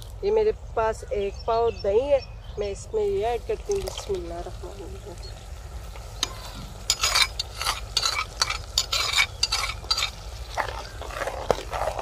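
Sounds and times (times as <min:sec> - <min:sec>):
oil sizzling: 0:03.0 - 0:12.0
spoon scraping pot: 0:06.2 - 0:12.0.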